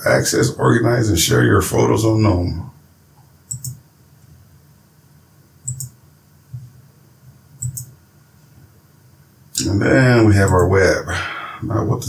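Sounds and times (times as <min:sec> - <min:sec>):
computer mouse clicking: 0:03.2 - 0:03.8, 0:05.6 - 0:06.7, 0:07.6 - 0:08.0, 0:10.4 - 0:10.7.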